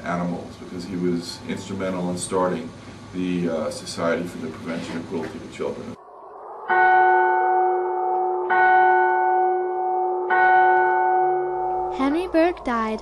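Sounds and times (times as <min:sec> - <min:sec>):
steady low drone: 0:05.7 - 0:13.0
bell tolling: 0:06.7 - 0:13.0.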